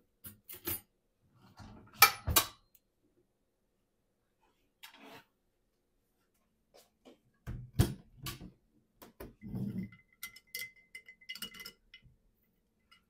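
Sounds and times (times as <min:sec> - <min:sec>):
straw stirring drink in glass jar: 0:09.8 - 0:12.1.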